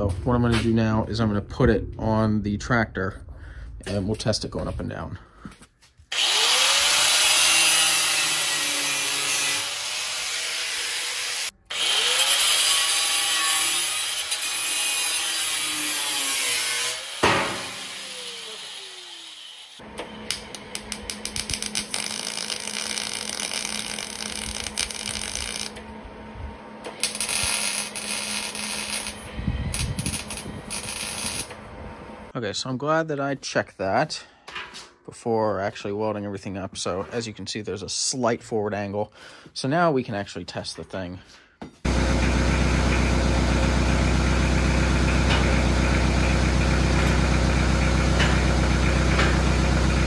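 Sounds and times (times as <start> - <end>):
angle grinder on steel: 6.1 - 25.9, 26.8 - 31.6
grinder spinning down whine: 17.0 - 26.1, 26.8 - 32.3.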